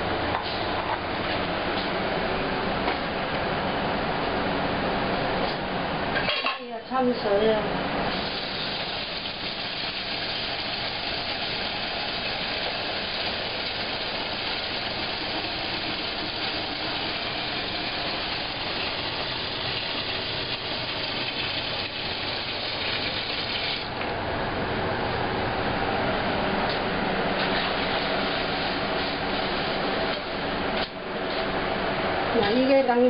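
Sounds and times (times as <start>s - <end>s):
faucet water pouring into metal cup: 8.1s - 23.9s.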